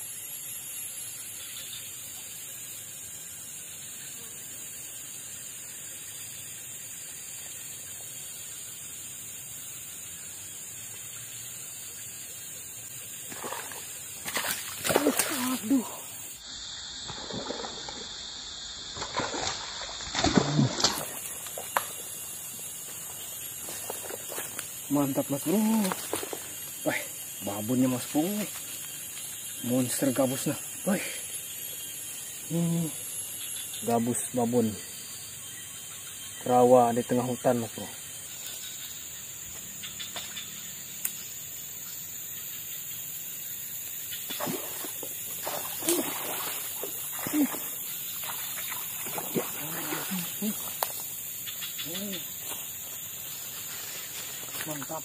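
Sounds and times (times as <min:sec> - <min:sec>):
splashing in shallow water: 0:13.2 - 0:16.3, 0:17.0 - 0:18.2, 0:18.8 - 0:24.7, 0:25.4 - 0:26.7, 0:44.2 - 0:51.2.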